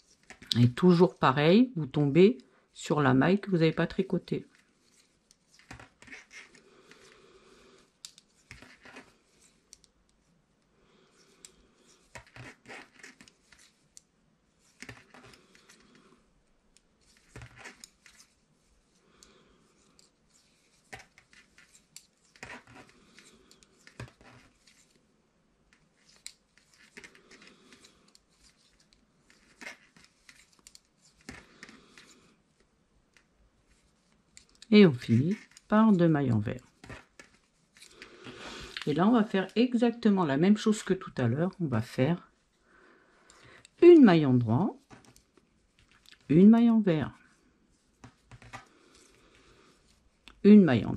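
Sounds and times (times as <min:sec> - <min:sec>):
knitting needles clicking: 0:08.0 - 0:08.8, 0:09.7 - 0:10.0, 0:25.7 - 0:32.1, 0:34.3 - 0:35.9.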